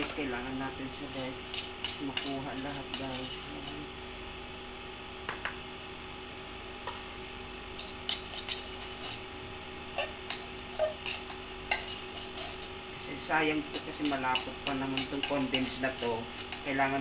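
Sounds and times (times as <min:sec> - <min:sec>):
steady low hum: 0:00.0 - 0:17.0
spatula scraping inside a tin: 0:01.1 - 0:03.8, 0:07.8 - 0:09.3, 0:10.0 - 0:12.8, 0:13.6 - 0:17.0.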